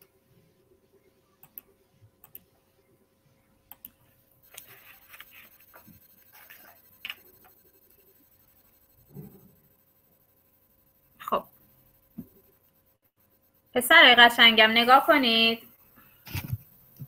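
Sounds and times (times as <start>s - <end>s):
pencil writing on paper: 4.6s - 9.7s.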